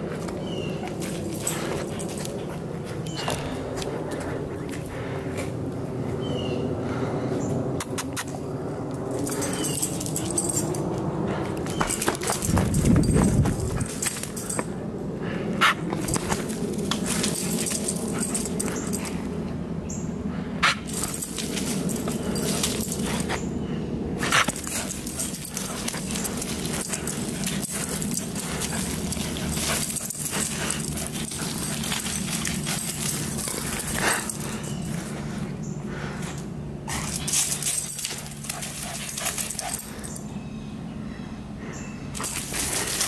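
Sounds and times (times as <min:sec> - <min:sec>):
paws scuffing and thudding on dirt: 0:00.0 - 0:05.7, 0:09.2 - 0:14.8, 0:15.6 - 0:19.4, 0:20.6 - 0:23.6, 0:24.2 - 0:36.2, 0:36.9 - 0:40.2, 0:42.2 - 0:43.0
steady low hum: 0:00.0 - 0:43.0.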